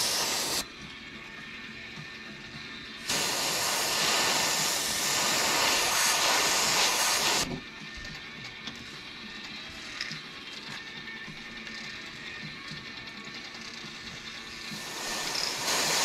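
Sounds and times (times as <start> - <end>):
airbrush hissing: 0.0 - 0.6, 3.0 - 7.5, 14.6 - 16.0.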